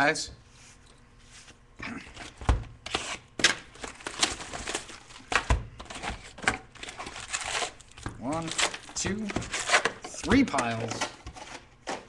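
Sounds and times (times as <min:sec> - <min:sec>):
wrappers rustling: 0:02.9 - 0:05.3, 0:05.9 - 0:10.2.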